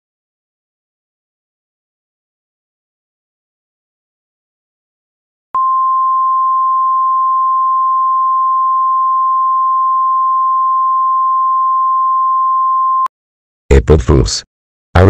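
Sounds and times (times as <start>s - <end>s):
steady emergency alert tone: 5.6s - 13.1s
person speaking: 13.7s - 15.0s.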